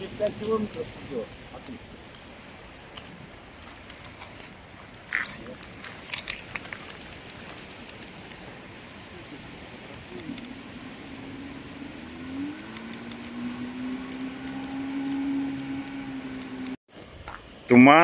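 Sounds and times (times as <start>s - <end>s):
river rushing: 0.0s - 16.8s
campfire crackling: 0.0s - 18.0s
distant engine drone: 7.1s - 16.8s.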